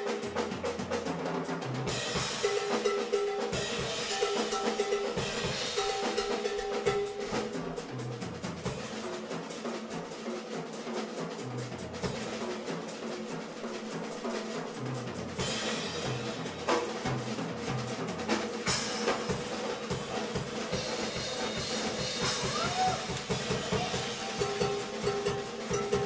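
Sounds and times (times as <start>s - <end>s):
fast busy drumming: 0.0s - 26.0s
live band playing: 0.0s - 26.0s.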